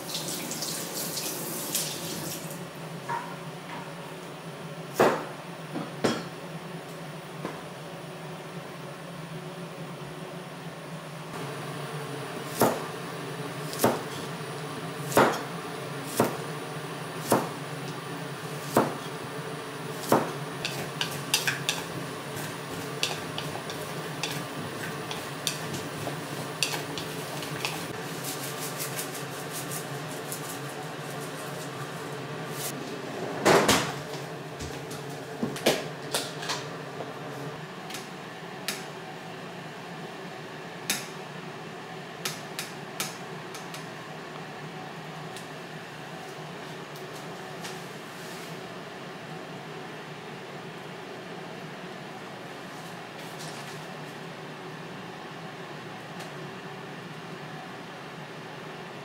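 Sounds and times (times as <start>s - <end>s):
knife chopping on cutting board: 12.5s - 12.8s, 13.7s - 14.2s, 15.1s - 15.5s, 16.1s - 16.4s, 17.2s - 17.5s, 18.6s - 19.1s, 20.0s - 21.8s.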